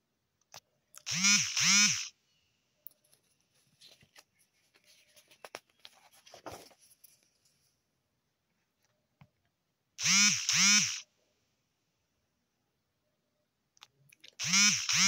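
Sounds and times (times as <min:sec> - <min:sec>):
magazine page turning: 0:03.0 - 0:07.6.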